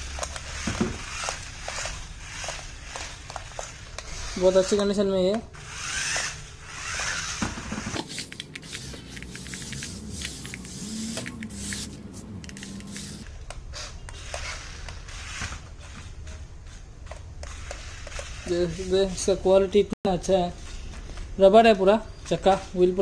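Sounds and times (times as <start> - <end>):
small electric motor whine: 0.0 - 5.0, 5.6 - 16.1
toy car wheels clicking on tiles: 0.0 - 13.3, 17.0 - 19.3.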